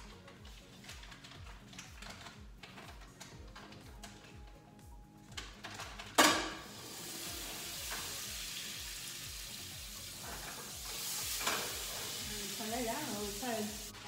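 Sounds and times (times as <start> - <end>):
butter sizzling in a pot: 6.4 - 14.0.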